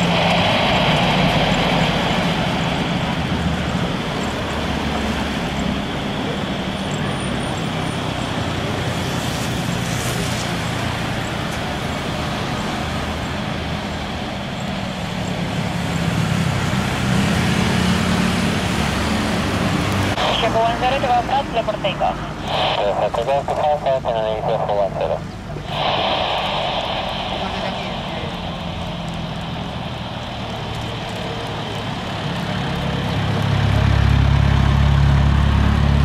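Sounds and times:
jet engines roaring at takeoff: 0:00.0 - 0:36.0.

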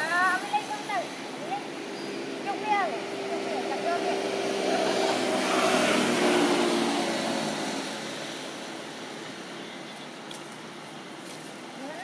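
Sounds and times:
engine passing by: 0:00.0 - 0:09.6.

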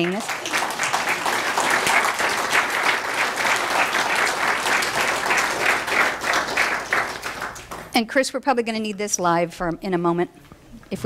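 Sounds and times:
congregation applauding: 0:00.0 - 0:08.0.

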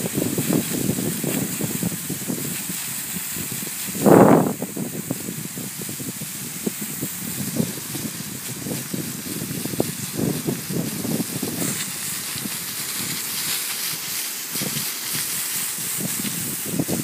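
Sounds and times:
air blower hissing: 0:00.0 - 0:17.0.

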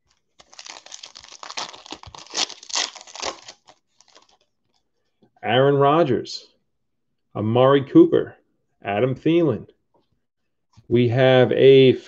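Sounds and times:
foil wrapper tearing and crinkling: 0:00.1 - 0:04.5.

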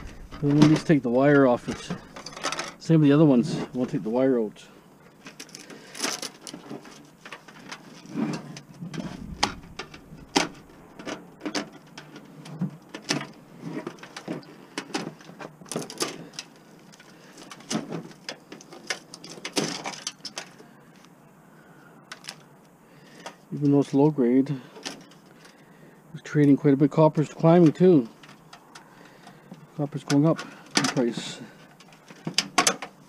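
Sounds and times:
wires rattling against metal case: 0:00.0 - 0:04.1, 0:05.1 - 0:20.6, 0:27.6 - 0:33.0.

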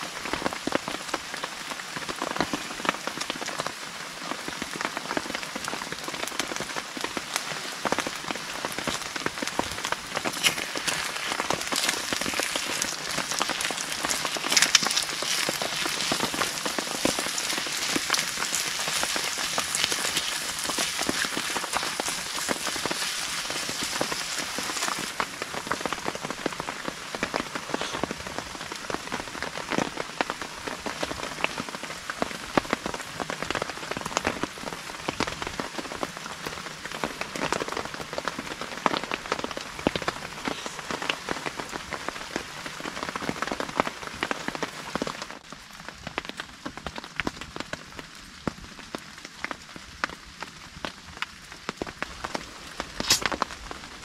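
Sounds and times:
rain falling: 0:00.0 - 0:54.0.

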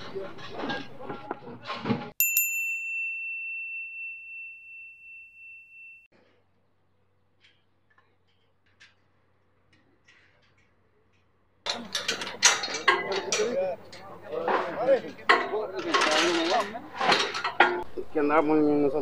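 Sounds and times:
small bell ringing: 0:02.2 - 0:06.1.

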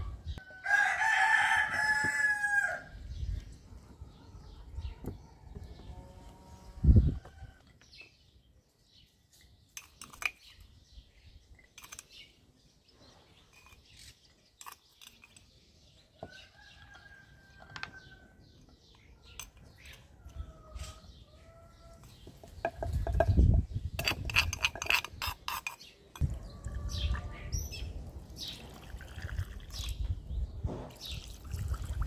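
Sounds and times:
birds chirping: 0:00.0 - 0:31.6
spoon and clay pots clicking: 0:09.7 - 0:10.6, 0:11.5 - 0:12.3, 0:13.5 - 0:15.6, 0:22.0 - 0:26.4.

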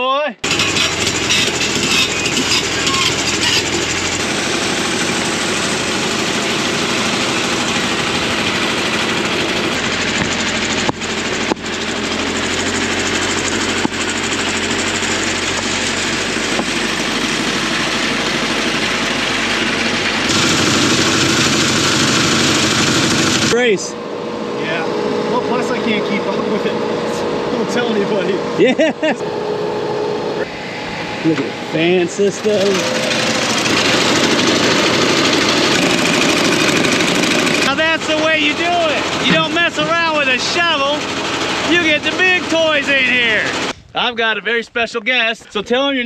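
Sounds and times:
diesel engine under load: 0:00.4 - 0:44.1.

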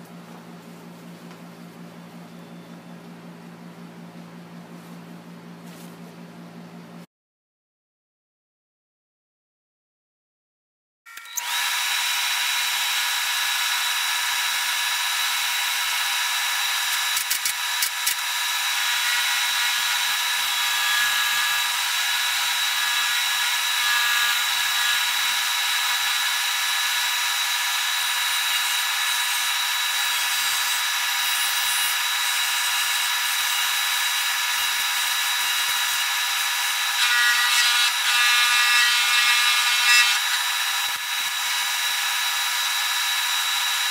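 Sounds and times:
shoe finishing machine whining: 0:11.1 - 0:43.9.

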